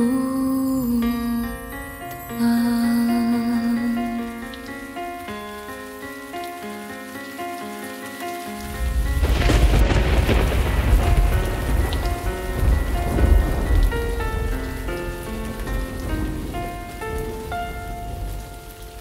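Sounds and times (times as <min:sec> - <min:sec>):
slow instrumental melody: 0:00.0 - 0:19.0
steady rain: 0:00.0 - 0:19.0
thunder rumbling: 0:08.6 - 0:19.0.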